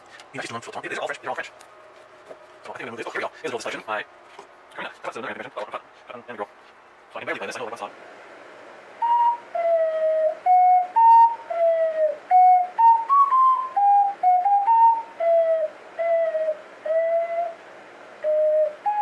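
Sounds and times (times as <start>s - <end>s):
ocarina tune: 9.0s - 17.6s.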